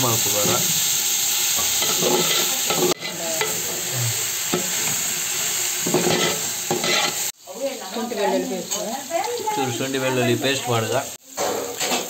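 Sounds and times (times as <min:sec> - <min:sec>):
onions sizzling in oil: 0:00.0 - 0:12.0
spoon scraping a pan: 0:01.5 - 0:07.3.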